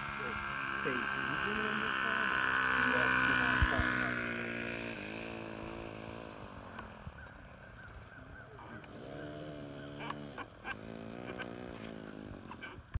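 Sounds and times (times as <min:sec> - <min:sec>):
model airplane engine running: 0:00.0 - 0:13.0
sharp ticks: 0:05.2 - 0:08.0, 0:08.6 - 0:13.0.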